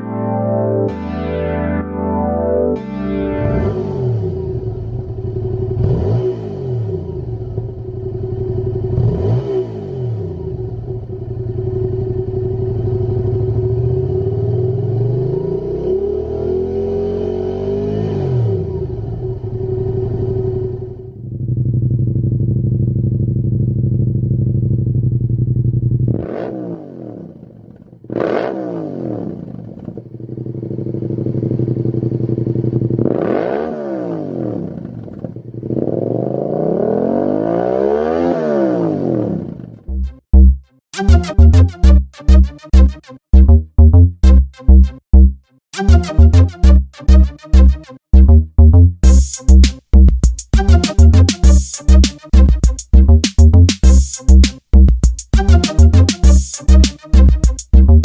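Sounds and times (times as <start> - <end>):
motorcycle engine revving: 3.6 - 40.1
motorcycle engine idling: 4.5 - 5.8, 7.0 - 9.0, 10.3 - 14.6, 19.0 - 26.1, 29.6 - 33.0.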